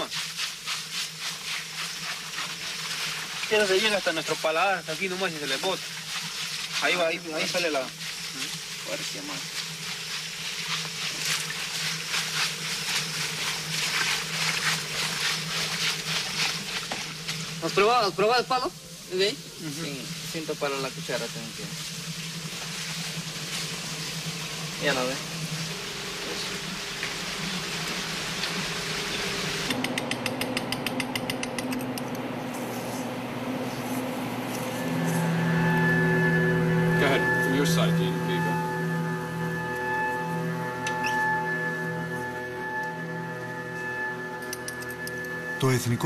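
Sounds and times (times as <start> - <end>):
even hiss: 0.0 - 29.8
rhythmic wet swishing: 0.0 - 30.2
steady low hum: 0.0 - 46.0.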